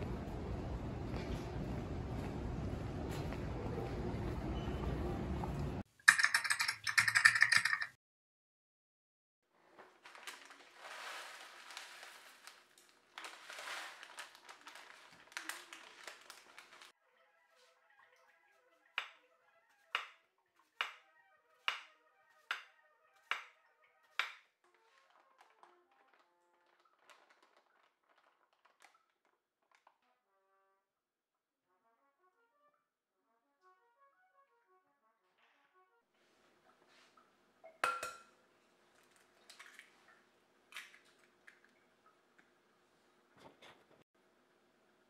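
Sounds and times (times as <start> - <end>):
soft music: 2.2 - 5.9
egg cracking into glass bowl: 6.1 - 7.9, 37.7 - 38.3
knife chopping on wooden board: 20.8 - 21.0, 21.6 - 23.5.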